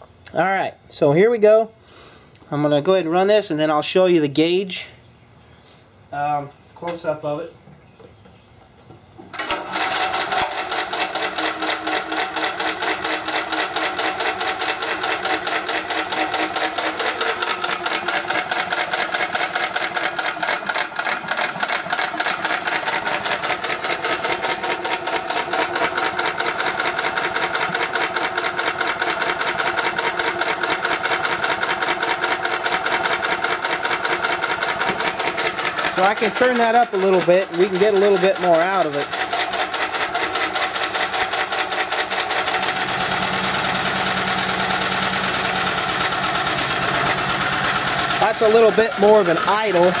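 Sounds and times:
small generator engine idling: 9.4 - 50.0.

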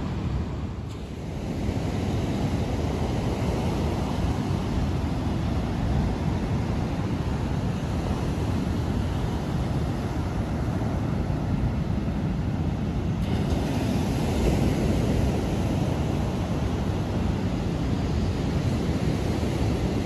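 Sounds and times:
ocean surf on sandy beach: 0.0 - 20.0
wind noise on microphone: 0.0 - 20.0.

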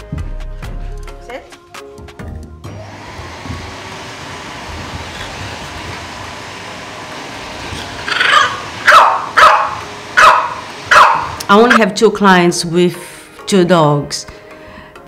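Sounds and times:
dog barking: 8.1 - 11.4.

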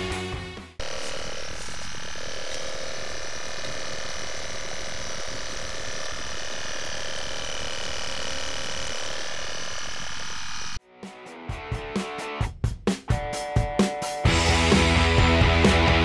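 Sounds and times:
air pump humming: 0.8 - 10.8.

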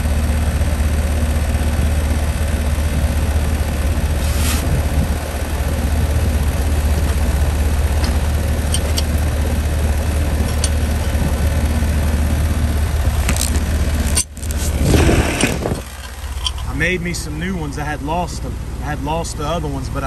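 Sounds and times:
heat pump unit humming: 0.0 - 20.0
handling noise: 4.0 - 5.4, 6.6 - 11.7, 13.0 - 16.9.

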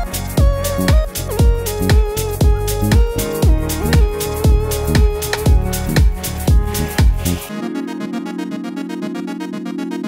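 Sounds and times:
electronic drum beat: 0.0 - 7.5
steady bass note: 0.0 - 7.5
fast choppy synth: 0.0 - 7.9.

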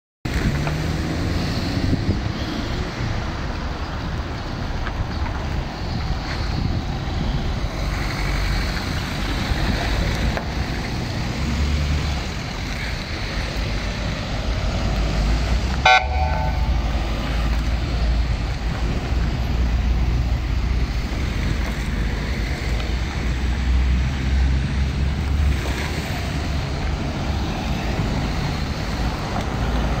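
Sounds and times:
vehicles driving past: 0.3 - 30.0
car horn toot: 15.8 - 17.0.

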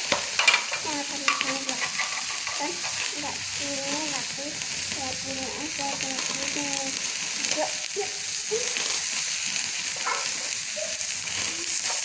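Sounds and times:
meat sizzling on a grill pan: 0.0 - 12.0
faint voice murmuring: 7.4 - 9.0.

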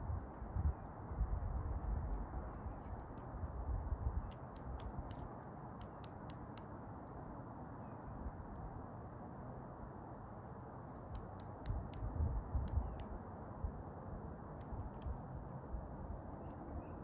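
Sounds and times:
wind buffeting microphone: 0.0 - 5.2, 11.6 - 13.9
bird pecking wire feeder: 4.2 - 6.7.

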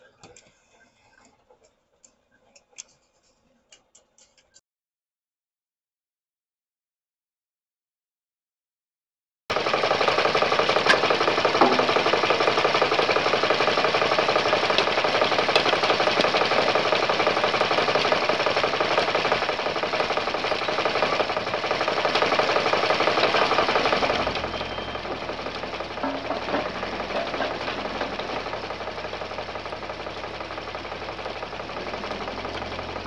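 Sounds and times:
machinery rattling: 9.5 - 33.0.

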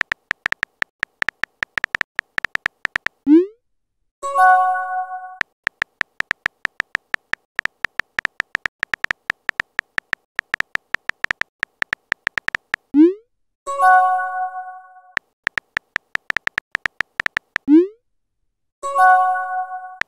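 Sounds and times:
phone keyboard typing clicks: 0.0 - 3.2, 5.4 - 12.9, 15.2 - 17.7.

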